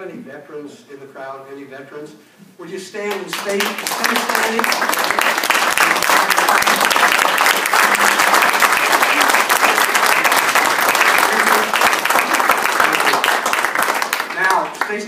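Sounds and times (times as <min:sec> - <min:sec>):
audience applauding: 0:03.1 - 0:15.0.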